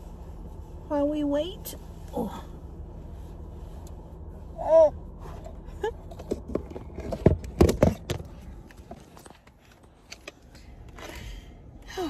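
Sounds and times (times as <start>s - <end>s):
low hum: 0.0s - 12.0s
knocks and bumps: 6.0s - 9.6s.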